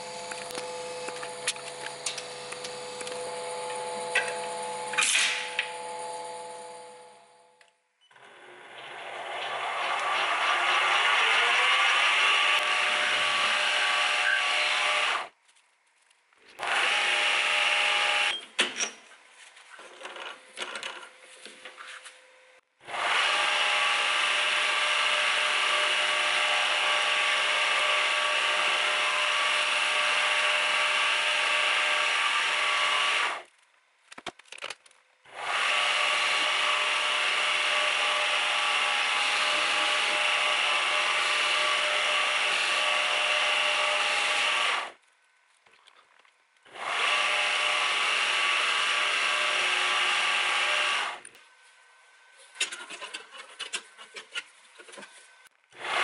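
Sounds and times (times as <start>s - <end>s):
metal lathe cutting steel: 35.4s - 44.9s.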